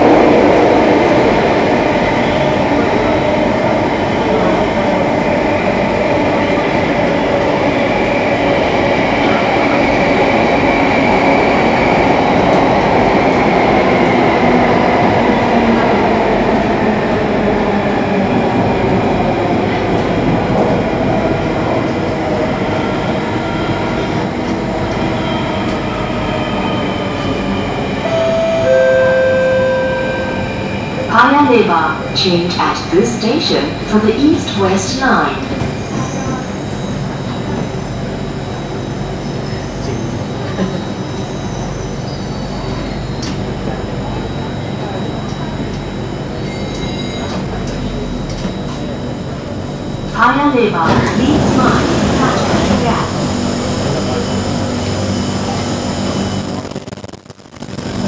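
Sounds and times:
train rumbling in tunnel: 0.0s - 57.0s
two-note descending chime: 28.0s - 31.1s.

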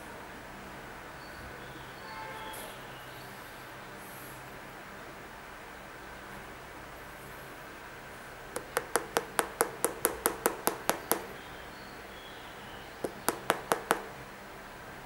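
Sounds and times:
finger tapping on hard plate: 8.6s - 11.4s, 13.0s - 14.2s.

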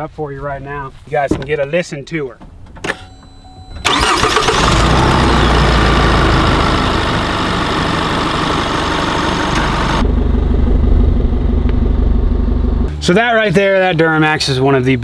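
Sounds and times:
diesel engine idling: 3.8s - 13.3s.

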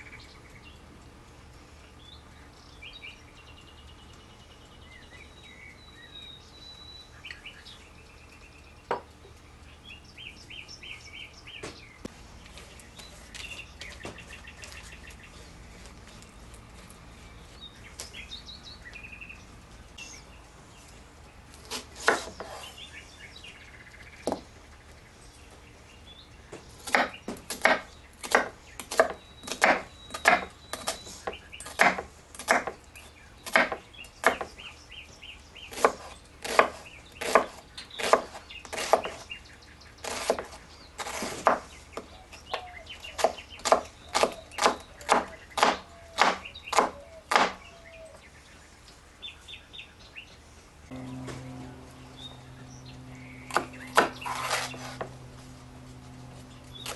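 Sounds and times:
knife chopping on wooden board: 21.7s - 22.6s, 26.8s - 32.8s, 33.5s - 34.5s, 35.7s - 39.2s, 43.2s - 47.6s, 53.5s - 55.1s.

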